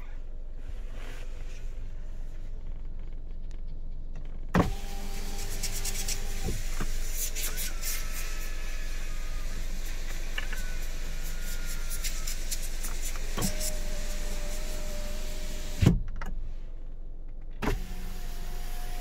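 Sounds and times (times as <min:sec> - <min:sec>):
power window motor whining: 0:04.6 - 0:16.0, 0:17.6 - 0:19.0.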